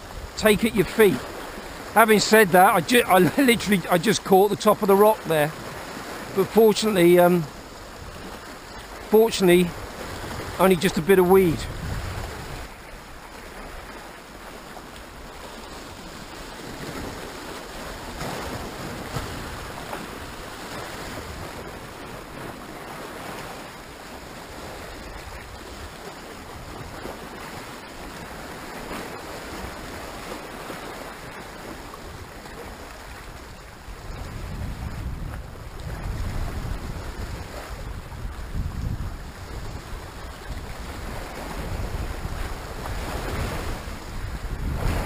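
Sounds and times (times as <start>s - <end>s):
waves washing over rocks: 0.0s - 45.0s
wind on microphone: 9.6s - 12.8s, 31.9s - 45.0s.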